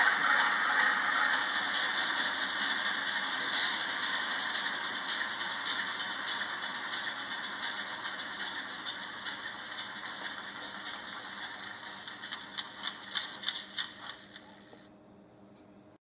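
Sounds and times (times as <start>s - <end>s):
model railway mechanism whirring: 0.0s - 14.9s
light clicking and ticking: 10.1s - 14.5s.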